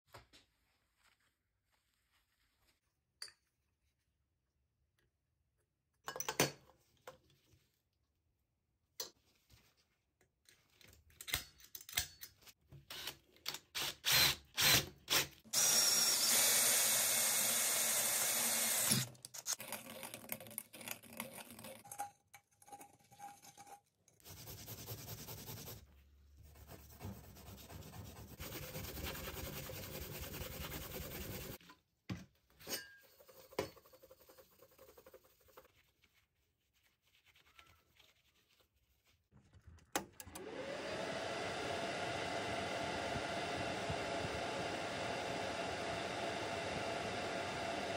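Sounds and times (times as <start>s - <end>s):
drill hole saw cutting metal pipe: 13.8s - 19.6s
scouring pad rubbing metal pipe: 26.6s - 31.6s.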